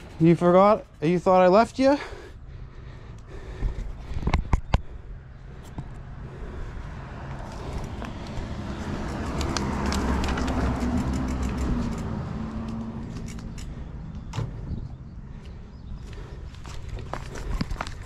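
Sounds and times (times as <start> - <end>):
vehicle passing: 4.8 - 18.0.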